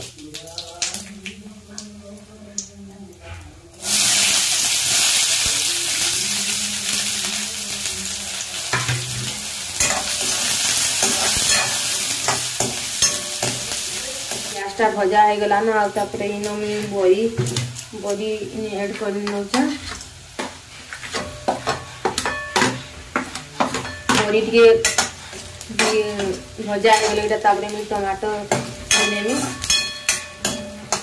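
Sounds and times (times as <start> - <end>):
onions sizzling in hot oil: 0.0 - 31.0
metal spatula scraping pan: 18.8 - 31.0.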